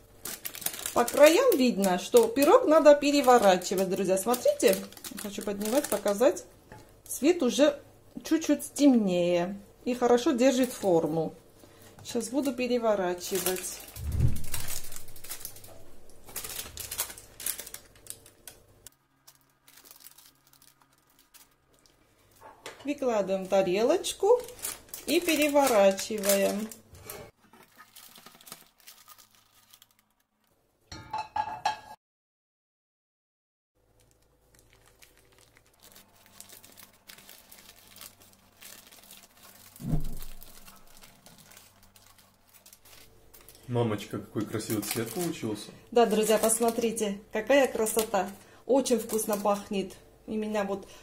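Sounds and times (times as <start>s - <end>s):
parchment paper rustling: 0.0s - 6.4s, 10.5s - 22.6s, 23.3s - 30.5s, 34.0s - 49.9s
short low thump: 14.0s - 14.8s.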